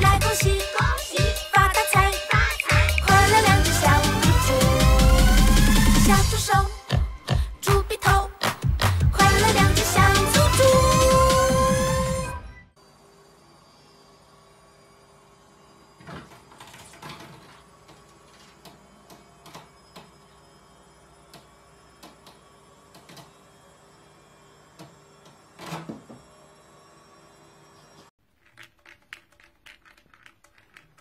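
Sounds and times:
toy ball clicking in plastic track: 28.4 - 31.0.

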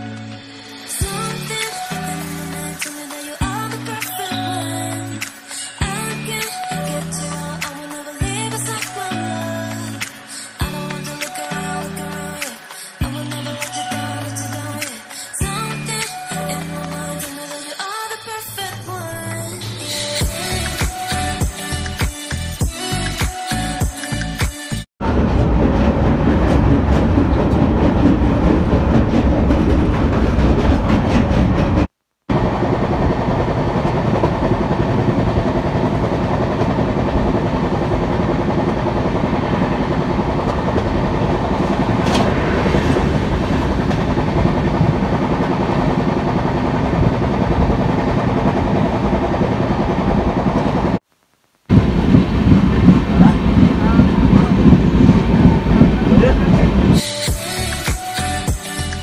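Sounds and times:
train wheels rumbling on rails: 25.0 - 51.0, 51.7 - 57.0.

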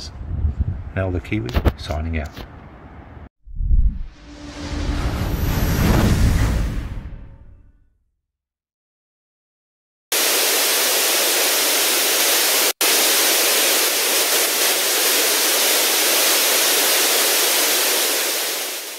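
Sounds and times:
loud white noise hiss: 10.2 - 18.9.

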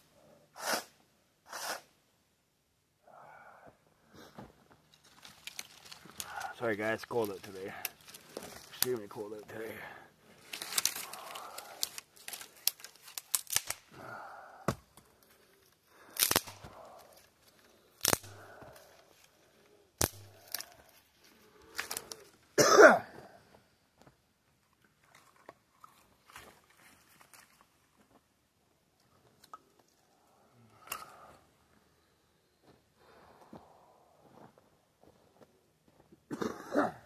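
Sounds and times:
twigs rustling: 4.8 - 13.9, 14.9 - 22.4, 25.0 - 28.0
dry branches snapping: 5.0 - 9.0, 10.4 - 13.9, 16.0 - 17.3, 18.0 - 18.9, 20.0 - 21.0, 21.7 - 22.3
person coughing: 22.6 - 23.1, 36.3 - 37.0.

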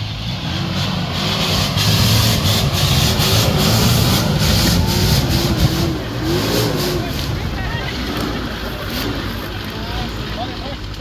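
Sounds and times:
engine labouring under load: 0.0 - 11.0.

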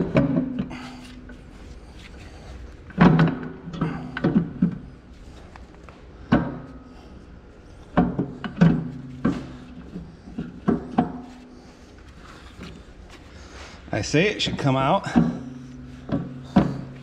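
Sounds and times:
heavy metal clunks and knocks: 0.0 - 1.3, 2.9 - 5.0, 6.2 - 7.0, 7.8 - 11.4, 14.7 - 17.0.

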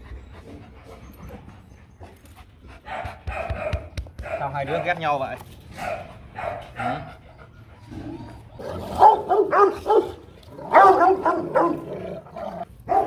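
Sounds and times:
dog barking: 2.9 - 5.0, 5.8 - 7.0, 8.9 - 11.9.

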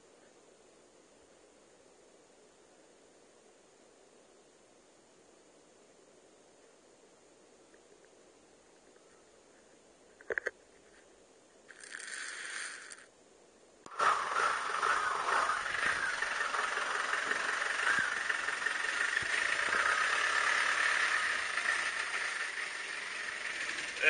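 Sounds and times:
rustle: 0.0 - 24.0
jeep engine running: 13.9 - 24.0.

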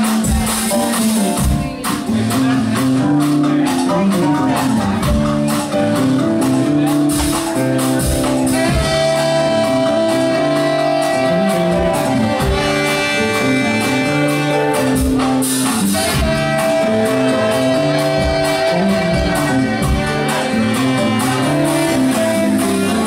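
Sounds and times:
bass line: 0.0 - 23.0
drums: 0.0 - 23.0
guitar: 0.0 - 23.0
keyboards: 0.0 - 23.0
saxophone notes: 4.4 - 23.0.

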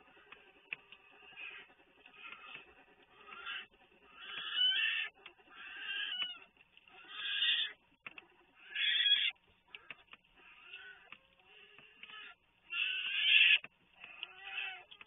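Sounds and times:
bear cubs crying: 0.0 - 15.0.

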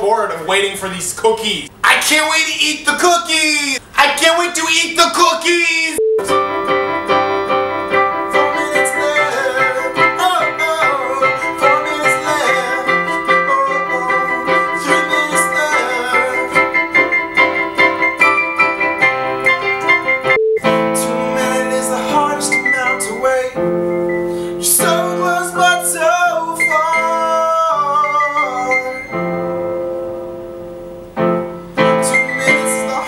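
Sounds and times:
man singing: 3.7 - 6.0, 8.2 - 17.0, 20.6 - 23.8, 24.5 - 29.3, 31.8 - 33.0
electronic keyboard playing: 6.0 - 33.0.

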